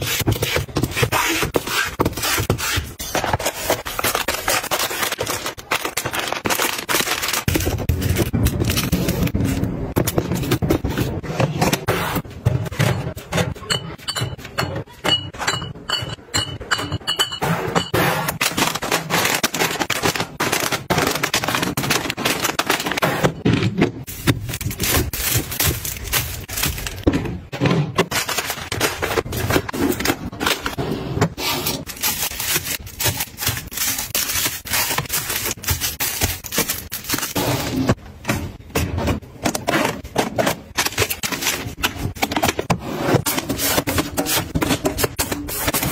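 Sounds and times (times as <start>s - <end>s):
items clicking and knocking: 0.0s - 45.9s
plastic crinkling: 24.1s - 27.0s.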